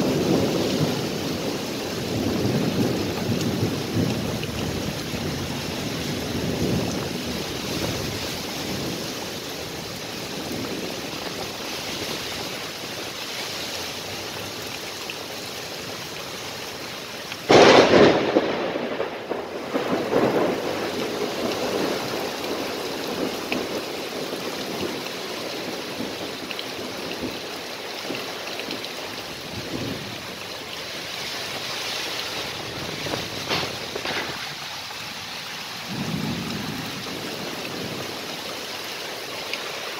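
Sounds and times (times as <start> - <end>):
thunderclap rumbling: 0.0 - 11.7, 17.5 - 30.4, 31.1 - 35.2, 35.8 - 38.2
heavy rain pouring: 0.0 - 39.9.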